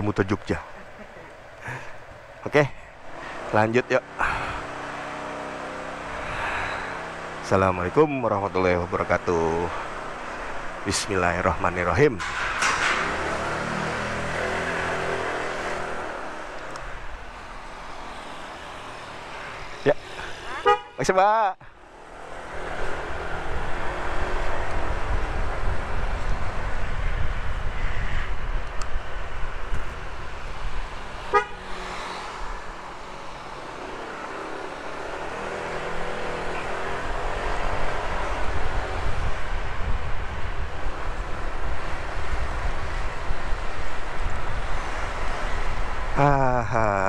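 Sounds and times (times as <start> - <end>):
scooter engine: 12.2 - 21.0, 29.9 - 47.0
wind on microphone: 22.5 - 31.4, 37.0 - 46.2.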